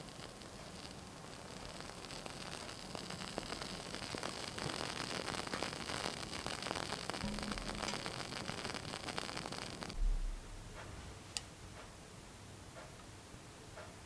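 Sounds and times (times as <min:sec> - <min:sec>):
flame hissing: 0:00.0 - 0:10.0
faint crackles: 0:00.0 - 0:11.5.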